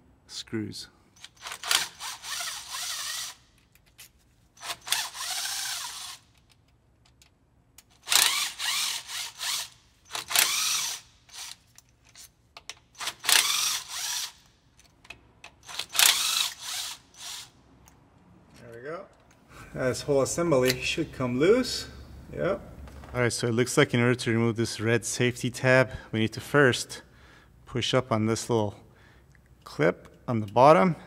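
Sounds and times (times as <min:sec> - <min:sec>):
impact driver spinning: 0:01.2 - 0:03.4, 0:04.6 - 0:06.4, 0:08.0 - 0:11.7, 0:12.8 - 0:14.4, 0:15.6 - 0:17.5.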